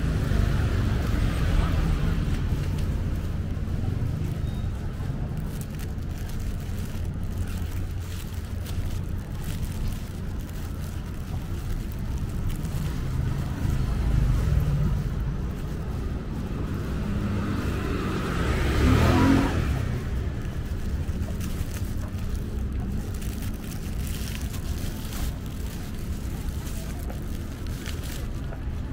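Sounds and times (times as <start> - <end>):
street traffic rumbling: 0.0 - 28.9
vehicle passing close: 7.6 - 28.9.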